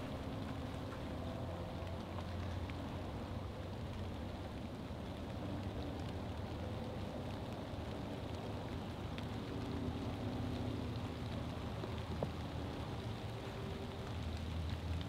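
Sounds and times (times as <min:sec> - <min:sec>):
rain falling: 0:00.0 - 0:15.0
faint ticks: 0:06.8 - 0:15.0.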